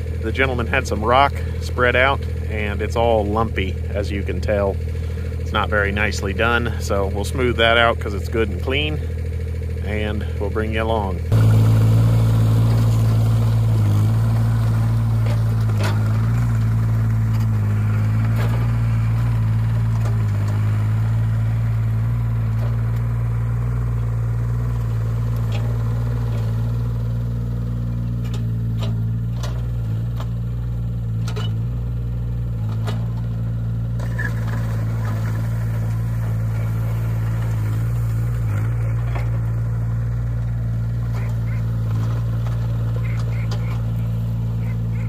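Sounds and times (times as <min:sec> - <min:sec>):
excavator diesel engine running: 0:00.0 - 0:45.0
tracks on gravel: 0:33.9 - 0:45.0.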